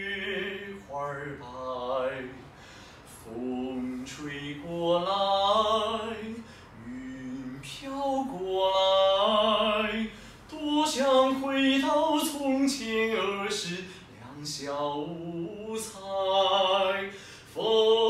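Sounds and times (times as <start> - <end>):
man singing opera: 0.0 - 2.5, 3.1 - 18.0
singer breathing: 2.4 - 3.2, 6.4 - 6.8, 10.1 - 10.5, 13.8 - 14.2, 17.1 - 17.6.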